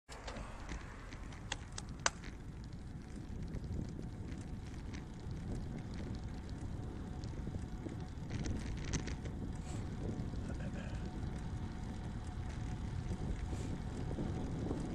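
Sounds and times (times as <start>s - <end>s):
wind and road rumble: 0.1s - 14.9s.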